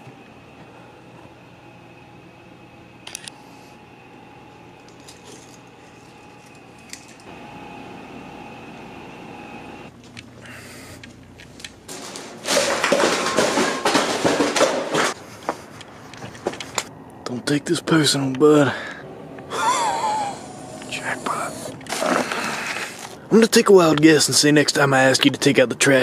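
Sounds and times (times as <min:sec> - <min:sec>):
low room hum: 0:00.0 - 0:26.0
small clicks: 0:03.0 - 0:03.4
plastic trash bag rustling: 0:11.5 - 0:15.2.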